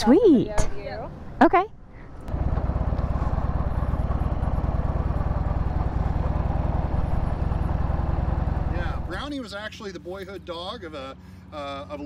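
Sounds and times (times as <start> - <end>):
motorcycle engine running: 2.2 - 10.4.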